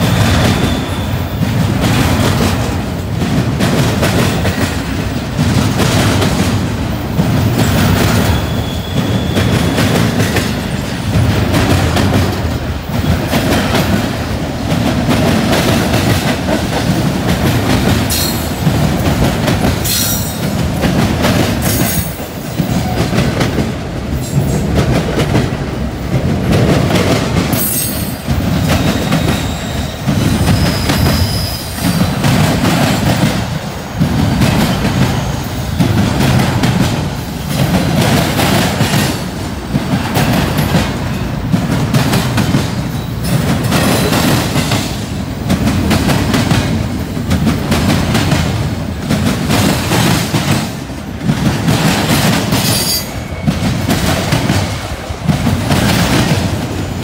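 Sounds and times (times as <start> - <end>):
faint high wheel squeal: 0.0 - 1.3, 8.2 - 9.8
train wheels clattering: 0.0 - 57.0.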